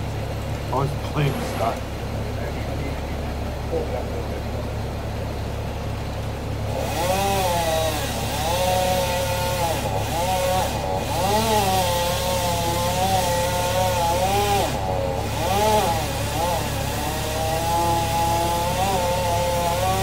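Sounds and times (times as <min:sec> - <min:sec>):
chainsaw cutting wood: 0:06.6 - 0:20.0.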